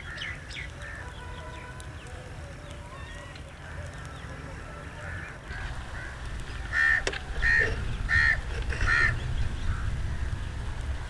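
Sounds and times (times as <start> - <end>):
bird harsh calls: 2.9 - 10.4.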